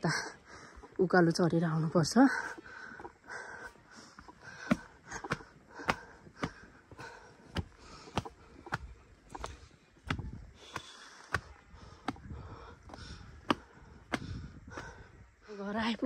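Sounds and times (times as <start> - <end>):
footsteps on stone steps: 2.0 - 15.1.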